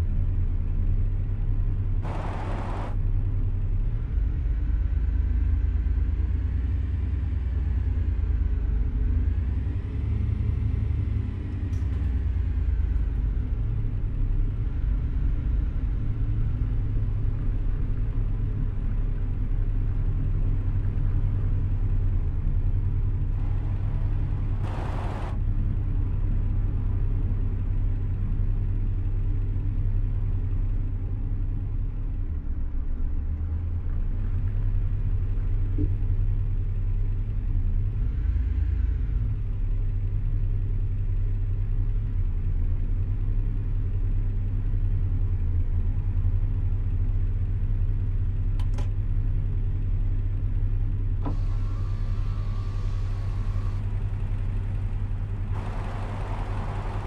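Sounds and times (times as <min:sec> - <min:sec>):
car rumble inside cabin: 0:00.0 - 0:57.0
brief clicks: 0:48.6 - 0:49.0.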